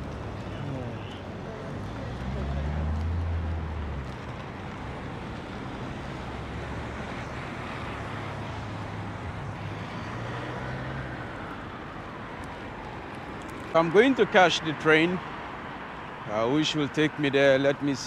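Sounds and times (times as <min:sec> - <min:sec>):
car and bus engines passing: 0:00.0 - 0:18.0
vehicle passing close by: 0:01.7 - 0:11.9.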